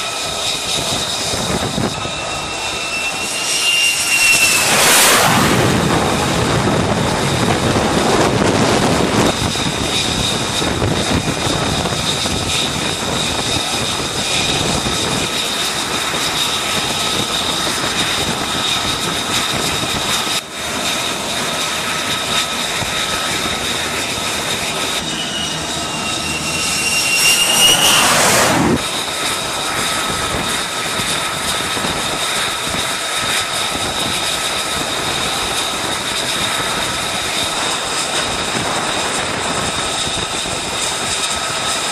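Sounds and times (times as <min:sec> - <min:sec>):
rising whine: 0:00.0 - 0:31.5
high turbine whine: 0:00.0 - 0:41.9
jet engine noise: 0:00.0 - 0:41.9.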